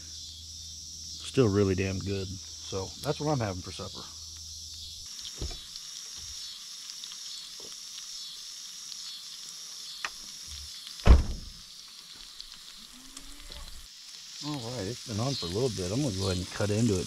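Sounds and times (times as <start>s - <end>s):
crickets chirping: 0.0s - 17.0s
steak sizzling in a pan: 0.0s - 17.0s
loud thump: 5.4s - 5.6s, 11.0s - 11.6s.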